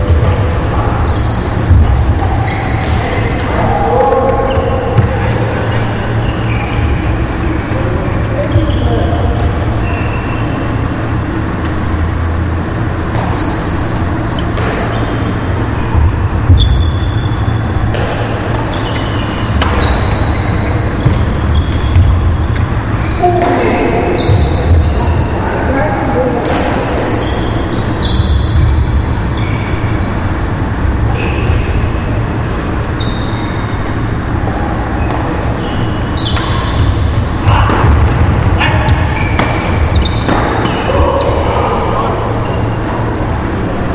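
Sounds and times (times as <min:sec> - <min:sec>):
low rumble of sports hall: 0:00.0 - 0:43.9
shoes squeaking on wooden floor: 0:01.0 - 0:03.6, 0:38.7 - 0:41.4.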